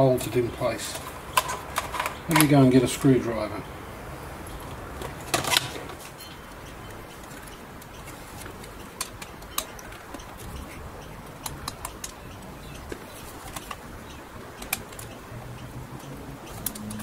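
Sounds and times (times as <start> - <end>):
screwdriver and small parts clicking: 11.4 - 13.9, 14.6 - 17.0.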